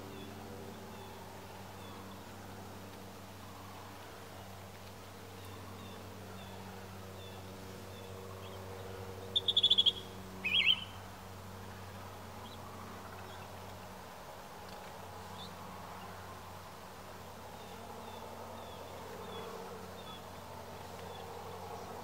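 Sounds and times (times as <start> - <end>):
finch calling: 9.3 - 11.0.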